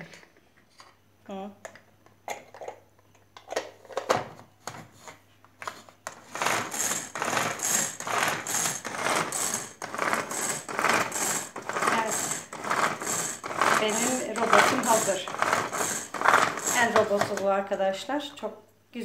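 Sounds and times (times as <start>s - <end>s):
pull-cord chopper whirring rattle: 6.4s - 17.0s.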